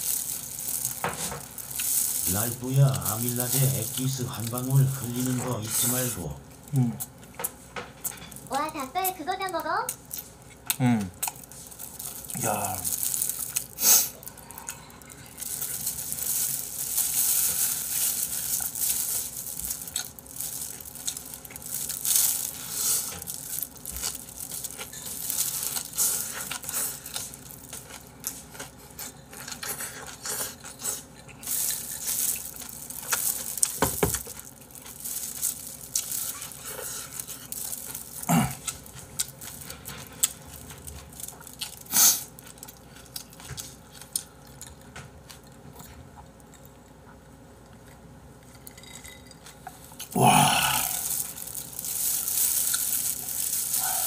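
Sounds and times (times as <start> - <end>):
person chewing and slurping wetly: 49.8 - 54.0.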